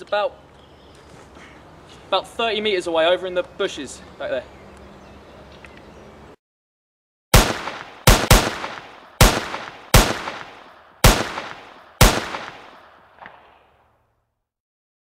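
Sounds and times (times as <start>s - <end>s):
rifle gunshots echoing: 7.3s - 13.6s.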